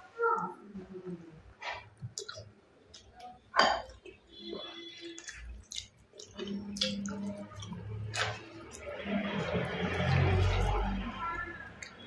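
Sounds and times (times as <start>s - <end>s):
wet chewing and lip-smacking: 2.0s - 3.3s, 4.9s - 10.9s.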